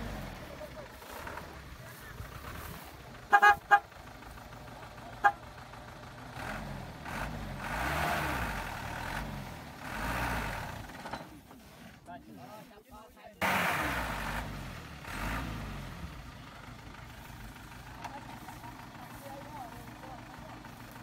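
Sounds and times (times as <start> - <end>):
truck engine revving: 0.0 - 12.1, 13.4 - 21.0
vehicle horn toots: 3.3 - 3.9, 5.2 - 5.4.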